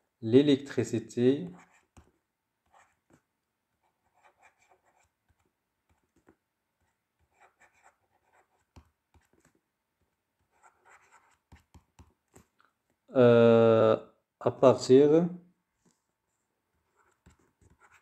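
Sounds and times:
pen scratching on paper: 1.4s - 9.6s, 10.4s - 12.5s, 16.7s - 18.0s.

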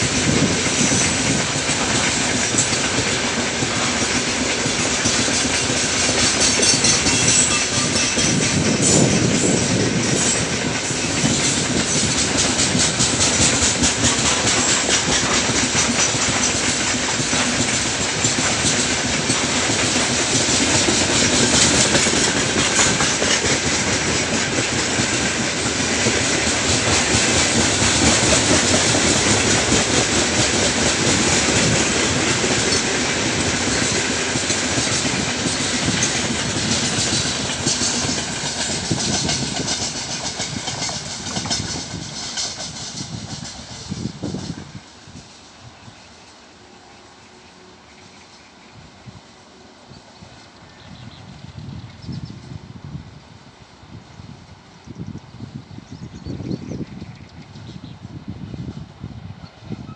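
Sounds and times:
wheels clickety-clack over rail joints: 0.0s - 46.6s
freight train wheels rumbling on rail: 0.0s - 59.9s.

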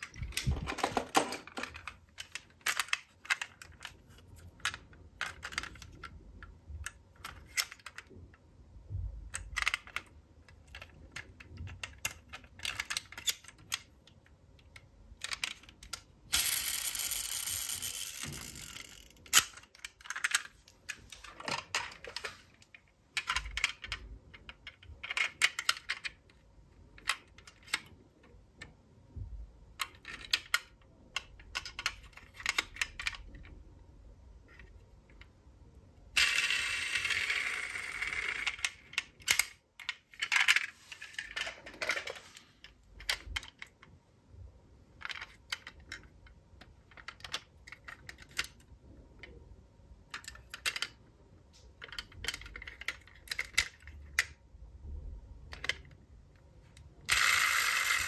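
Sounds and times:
toy cars clicking and clacking: 0.0s - 8.2s, 9.3s - 22.4s, 29.8s - 33.5s, 36.1s - 43.8s, 45.0s - 49.4s, 50.1s - 51.0s, 51.8s - 54.4s, 57.0s - 58.0s.

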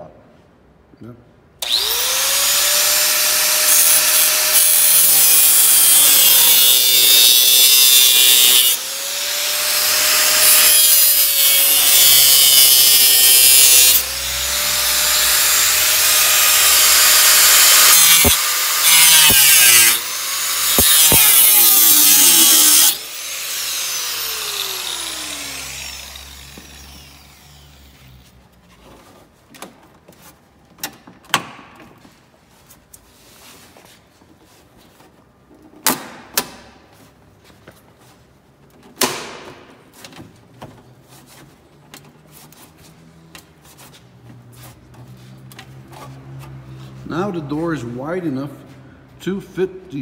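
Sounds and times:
angle grinder cutting metal: 1.6s - 28.2s
grinder spinning down: 5.8s - 27.9s.

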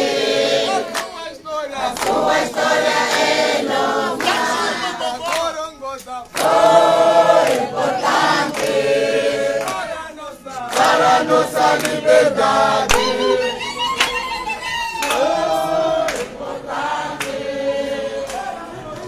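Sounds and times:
crowd singing and chanting: 0.0s - 19.0s.

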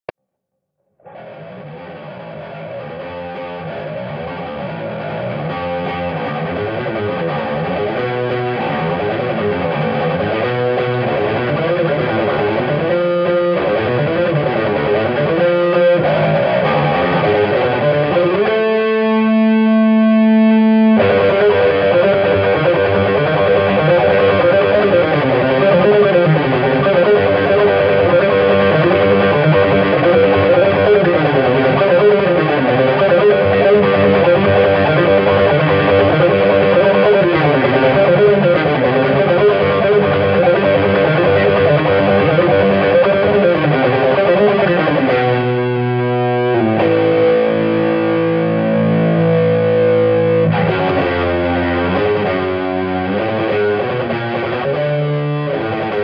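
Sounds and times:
distorted electric bass guitar: 0.0s - 56.0s.

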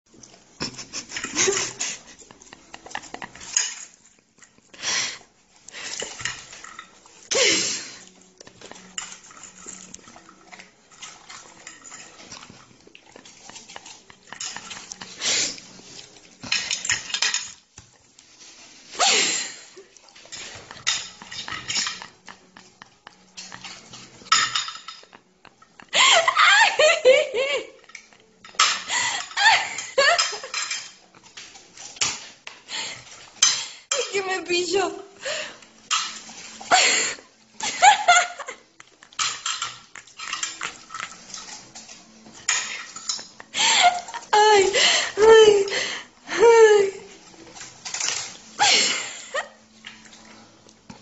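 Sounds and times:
fork clinking and scraping a plate: 0.2s - 4.7s, 5.8s - 17.6s, 20.0s - 25.7s, 27.8s - 34.1s, 35.7s - 36.8s, 37.6s - 44.3s, 47.2s - 51.0s
louder cutlery clatters: 0.7s - 4.5s, 8.7s - 15.2s, 16.4s - 17.6s, 20.2s - 25.2s, 27.9s - 32.4s, 35.8s - 36.6s, 39.1s - 44.2s, 47.5s - 49.1s.

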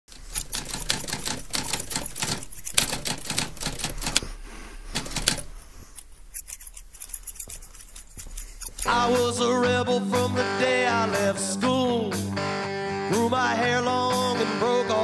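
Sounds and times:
typewriter keys clacking: 0.1s - 4.2s, 4.9s - 5.5s.

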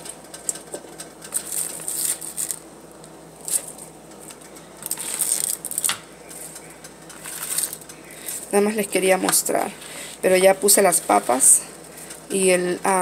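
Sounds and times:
vegetables rustling in metal colander: 1.3s - 2.6s, 3.4s - 3.9s, 4.8s - 8.6s.

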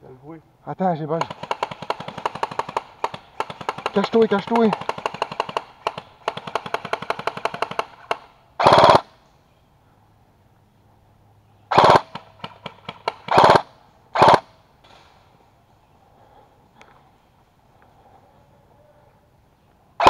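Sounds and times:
airsoft rifle full-auto bursts: 1.2s - 9.1s, 11.7s - 14.5s.

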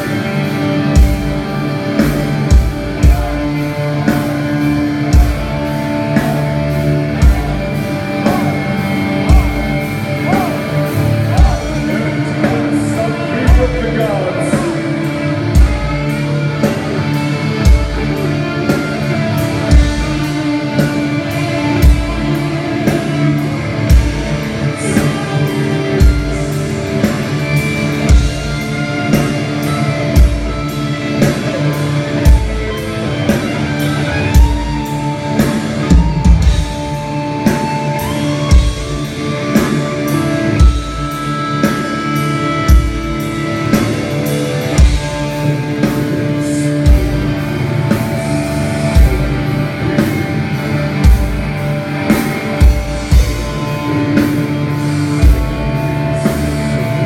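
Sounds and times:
metal band playing live: 0.0s - 57.0s.

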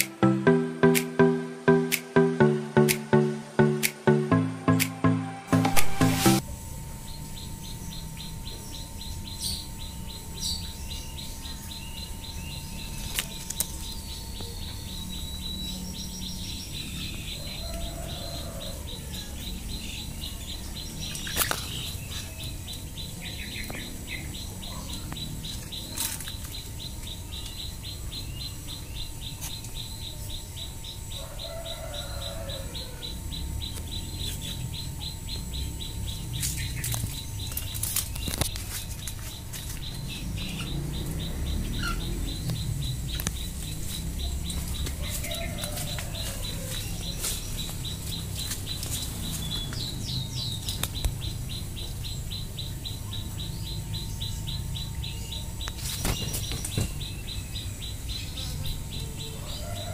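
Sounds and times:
high-pitched chirps: 0.0s - 6.4s.

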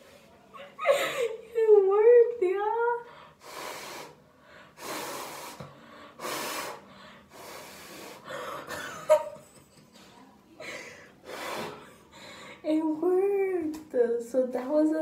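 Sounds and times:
person blowing through soapy cloth: 3.4s - 4.2s, 4.8s - 5.6s, 6.2s - 8.2s.

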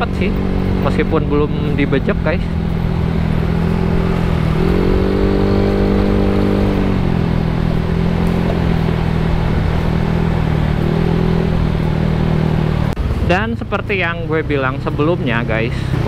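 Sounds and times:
scooter engine running: 0.0s - 13.4s
wind and road noise: 0.0s - 16.0s.

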